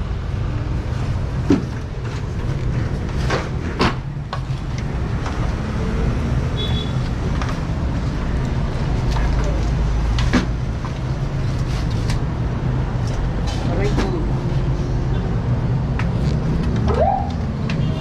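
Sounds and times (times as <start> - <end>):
bamboo poles knocking together: 8.4 - 11.1.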